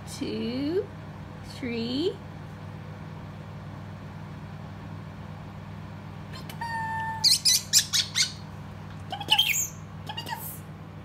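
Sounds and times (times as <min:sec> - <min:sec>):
parrotlet chirps: 0:07.2 - 0:08.5, 0:09.1 - 0:10.4.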